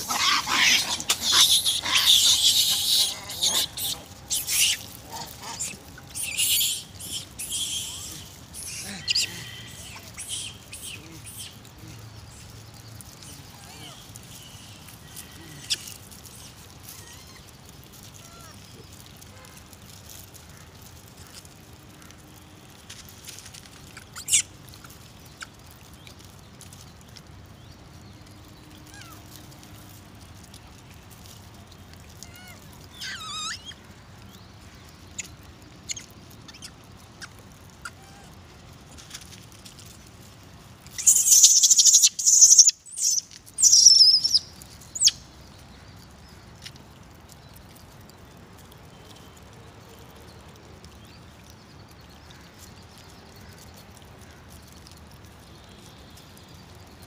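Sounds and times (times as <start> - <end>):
monkeys screeching: 0.0 - 11.7, 13.2 - 17.5, 18.1 - 18.6, 23.9 - 24.4, 28.9 - 29.3, 32.2 - 33.8, 35.9 - 38.4, 41.0 - 44.4
monkeys squeaking and chirping: 0.0 - 18.6, 23.9 - 25.6, 28.9 - 29.3, 32.2 - 33.8, 35.1 - 38.4, 40.9 - 45.2
outdoor background noise: 0.0 - 57.0.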